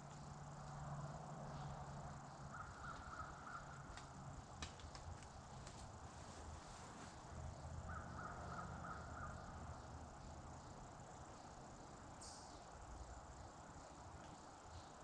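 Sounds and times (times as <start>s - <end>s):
faint insect calls: 0.0s - 15.0s
distant crow cawing: 2.3s - 4.4s, 7.8s - 9.7s.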